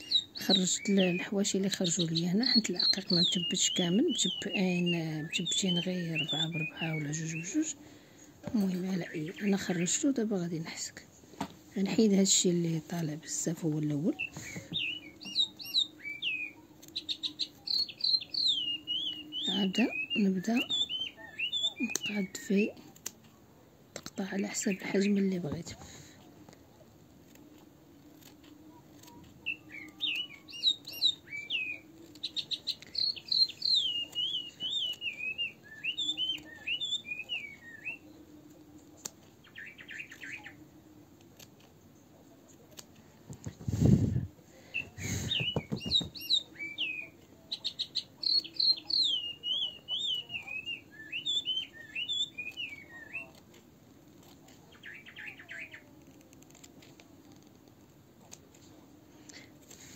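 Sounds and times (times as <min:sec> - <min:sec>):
songbird warbling: 0:00.0 - 0:07.8, 0:13.3 - 0:22.7, 0:29.0 - 0:38.2, 0:39.4 - 0:40.6, 0:44.7 - 0:53.4, 0:54.6 - 0:55.9.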